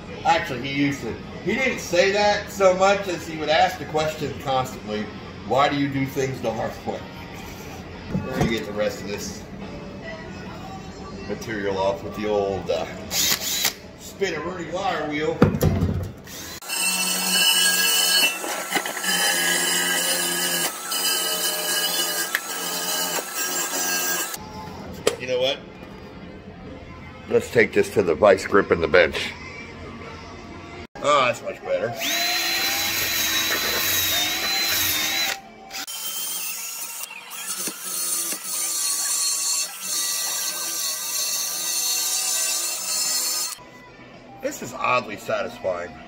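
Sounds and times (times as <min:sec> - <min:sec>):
drill spinning wire wheel on metal: 0:16.3 - 0:24.4, 0:32.0 - 0:43.6
drill wire wheel scrubbing steel: 0:16.4 - 0:24.4.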